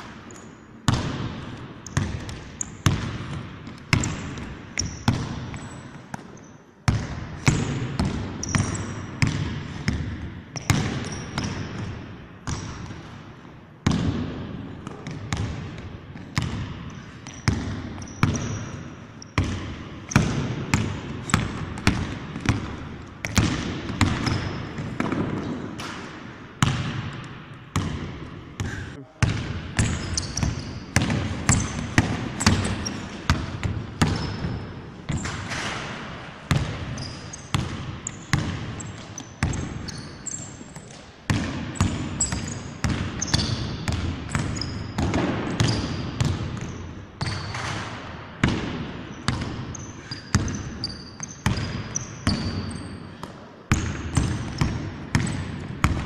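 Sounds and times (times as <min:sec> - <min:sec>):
sneakers squeaking: 0:00.0 - 0:56.0
basketball bouncing on wood floor: 0:00.9 - 0:13.1, 0:13.8 - 0:18.8, 0:19.4 - 0:56.0.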